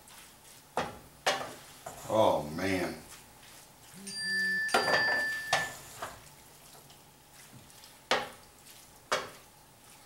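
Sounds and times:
spoon stirring in pan: 0.0s - 2.1s, 3.0s - 10.0s
knocks on pan: 8.1s - 8.4s.

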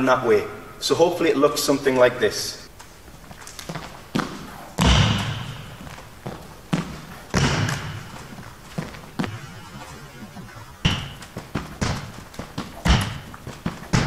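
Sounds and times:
running footsteps on hall floor: 2.7s - 14.0s
heavy landing thuds: 3.7s - 14.0s.

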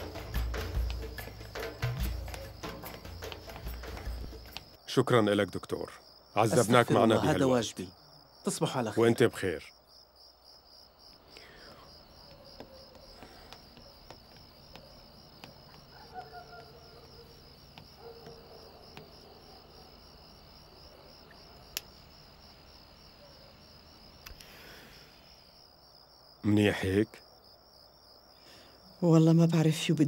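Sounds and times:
crickets chirping: 0.0s - 30.0s
faint ticks: 21.4s - 22.0s, 24.2s - 24.6s.

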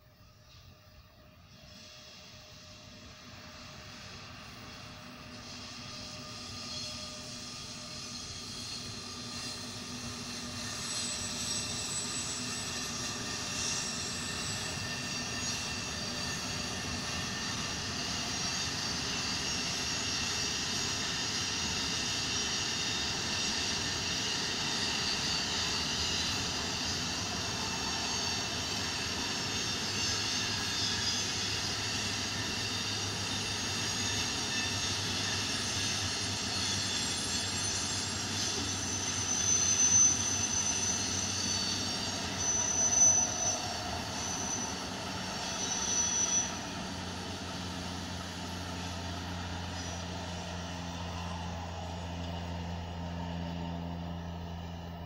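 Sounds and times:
freight train wheels on rails: 0.0s - 55.0s
high-pitched squeals: 1.5s - 55.0s.

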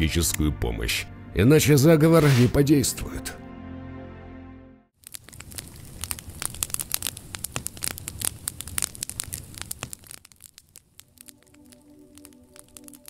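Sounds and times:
fire crackling and popping: 5.0s - 13.0s
soft sustained music tone: 11.2s - 13.0s.

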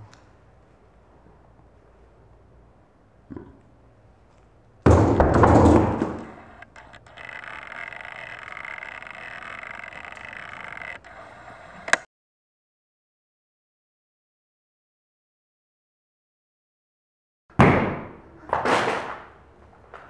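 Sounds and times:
loud crash on tabletop: 4.9s - 6.3s
sharp click: 6.1s - 12.1s.

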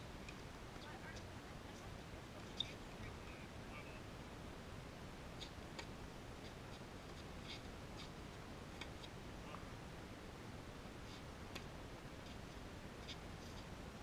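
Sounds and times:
faint outdoor background noise: 0.0s - 14.0s.

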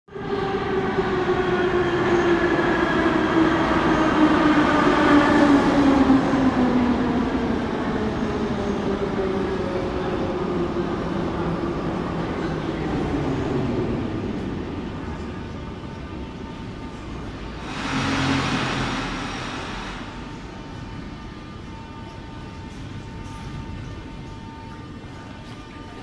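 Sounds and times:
wheels rumbling on rails: 3.4s - 25.9s.

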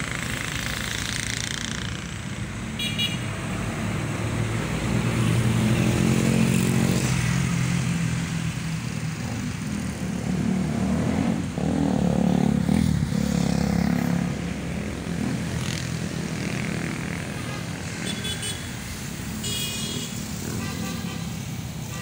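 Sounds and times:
small motorcycle: 0.0s - 3.1s, 8.7s - 18.2s
passing vehicle engines: 0.0s - 22.0s.

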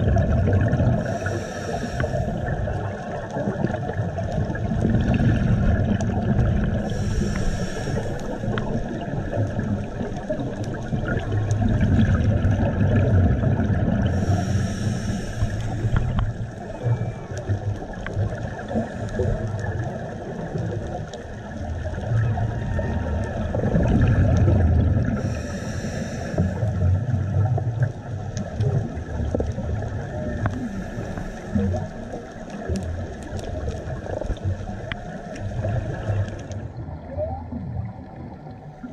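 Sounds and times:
scuba regulator bubbles hissing: 0.0s - 27.9s
low underwater rumble: 0.0s - 38.9s.

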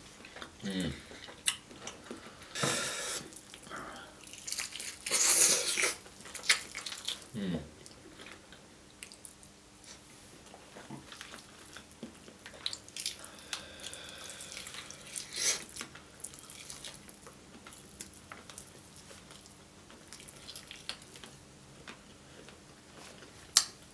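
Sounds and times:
wet chewing and lip smacks: 3.3s - 8.4s, 9.0s - 9.5s, 11.0s - 22.6s.

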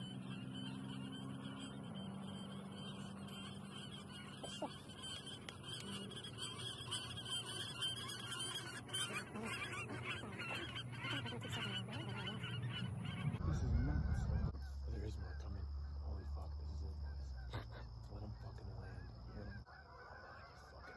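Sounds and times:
geese honking: 0.0s - 20.9s
steady low hum: 0.0s - 20.9s.

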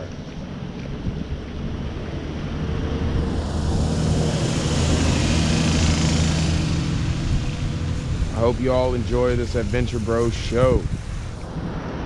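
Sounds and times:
car engine hum: 0.0s - 12.0s
tyre hiss: 6.4s - 12.0s.

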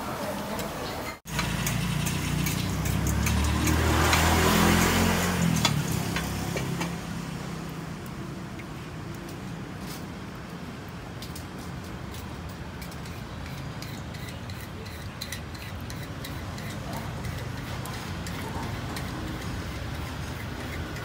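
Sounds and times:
street background noise: 0.0s - 21.0s
vehicle engine passing: 1.3s - 9.9s.

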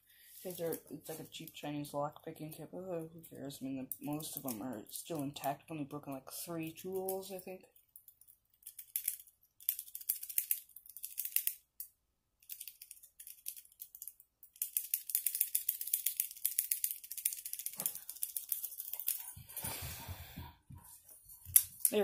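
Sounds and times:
lock pick rattling in padlock: 8.2s - 11.6s, 12.4s - 19.3s.

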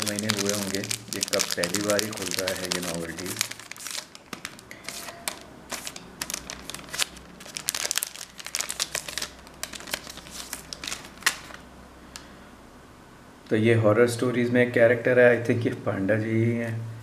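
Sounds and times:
plastic packaging crinkling: 0.0s - 11.6s.

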